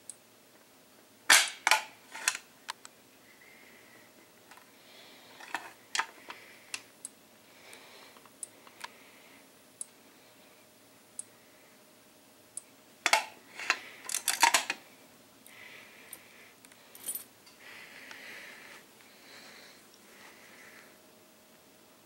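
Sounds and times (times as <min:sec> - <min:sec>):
keys rattling: 0:16.9 - 0:17.3.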